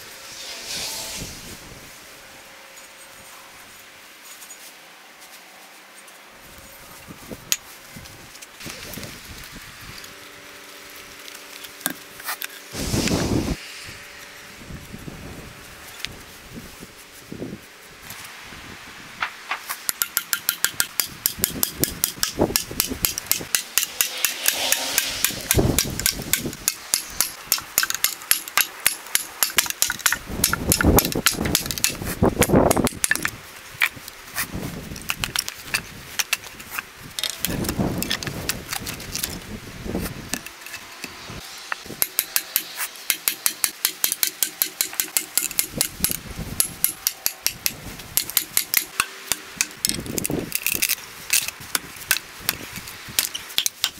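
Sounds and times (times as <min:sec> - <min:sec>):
hatchet tapping steel blade: 0:19.8 - 0:33.3, 0:40.3 - 0:51.5.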